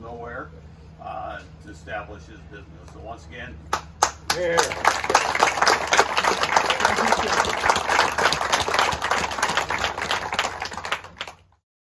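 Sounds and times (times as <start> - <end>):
audience applauding: 4.0 - 11.5.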